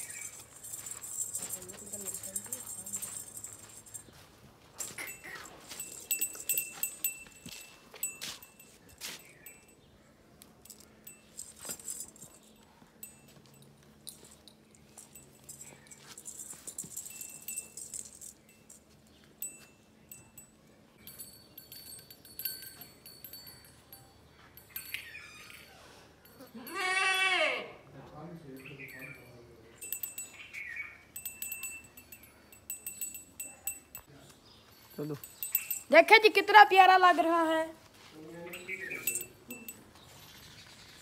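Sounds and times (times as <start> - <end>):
faint clinks and jingles: 0.0 - 41.0
goat bleating: 26.5 - 27.8.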